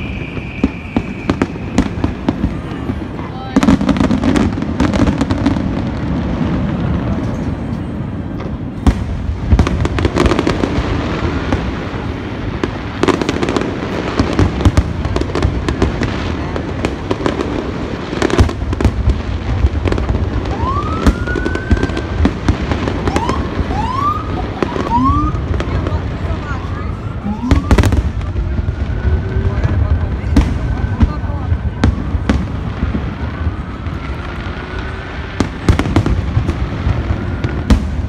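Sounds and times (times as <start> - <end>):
rising firework whistles: 0.0 - 3.0, 20.2 - 25.8, 26.4 - 38.0
continuous rumble: 0.0 - 38.0
fireworks bangs: 0.0 - 38.0.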